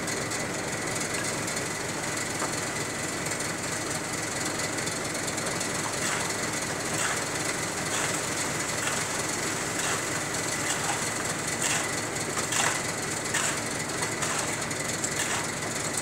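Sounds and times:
machinery running: 5.1s - 16.0s.

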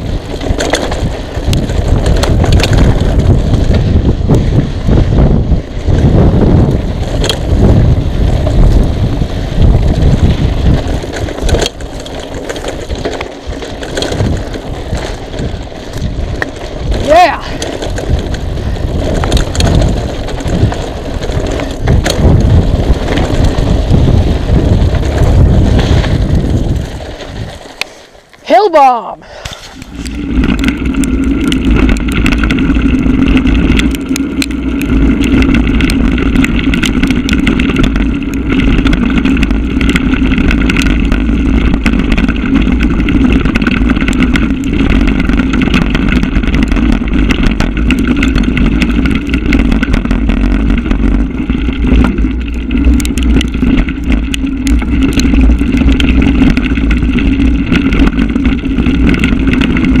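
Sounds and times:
bike rattles and clicks: 0.0s - 60.0s
tyres on dirt and wind rumble: 0.0s - 60.0s
steady buzzing drone: 29.5s - 60.0s.

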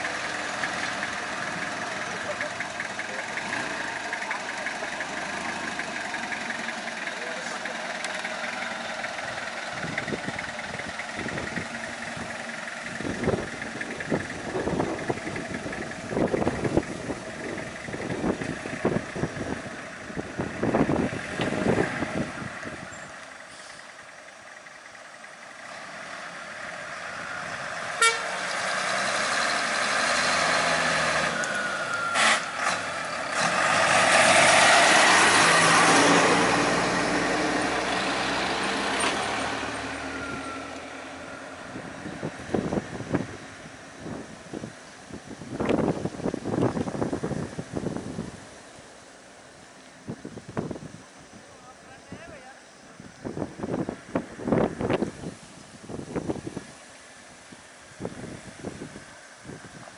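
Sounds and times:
large vehicle engine: 0.0s - 59.9s
vehicle engines running: 0.0s - 59.9s
short horn toot: 28.0s - 28.4s.

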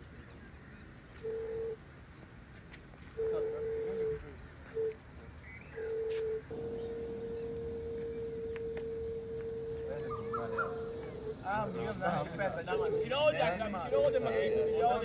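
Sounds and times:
electronic beep tone: 5.6s - 15.0s.

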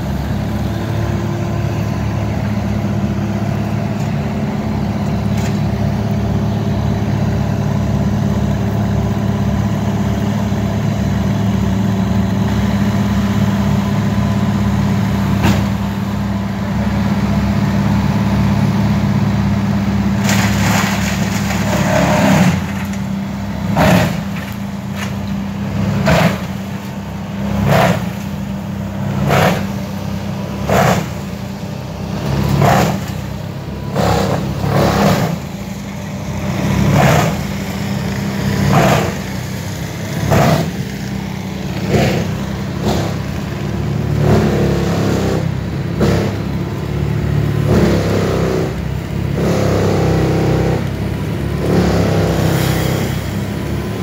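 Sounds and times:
wood chipper chewing a log: 19.8s - 54.0s.

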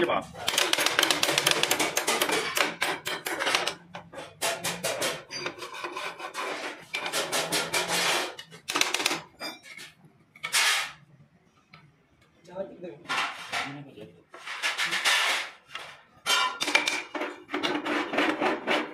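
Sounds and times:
hand file rasping on metal: 4.4s - 8.4s, 17.6s - 18.9s.

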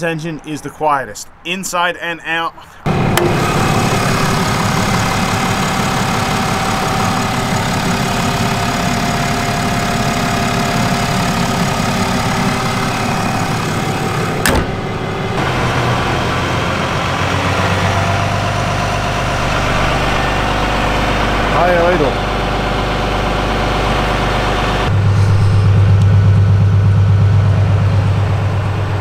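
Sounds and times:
diesel engine idling: 2.8s - 29.0s
sharp click: 14.4s - 14.7s.

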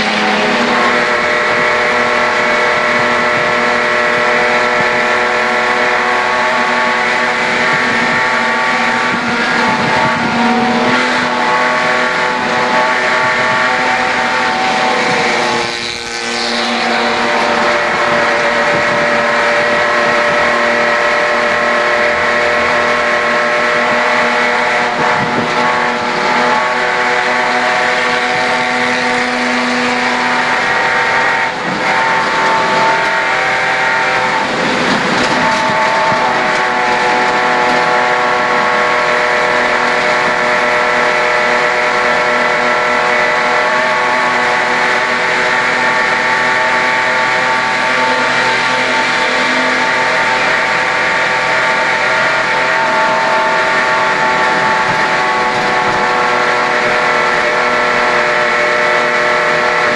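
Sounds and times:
race car engine at high revs: 0.0s - 59.9s.

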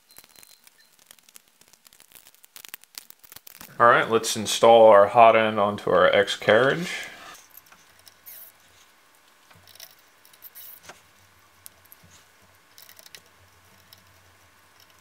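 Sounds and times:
metal parts shifting: 9.5s - 10.9s, 12.7s - 15.0s.

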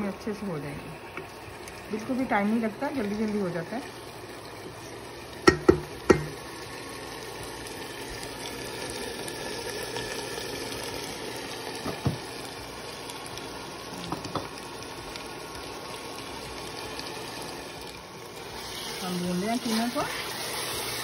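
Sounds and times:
food sizzling in oil: 0.0s - 21.0s
wooden spoon knocking on pot: 5.5s - 6.4s, 11.8s - 12.2s, 14.1s - 14.5s.

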